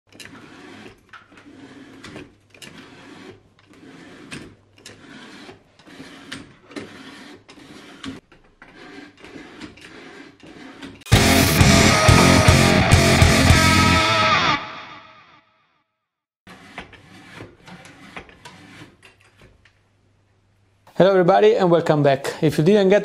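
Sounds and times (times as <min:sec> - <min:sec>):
scraping sliding and clicking: 0:00.1 - 0:11.1, 0:16.5 - 0:19.8.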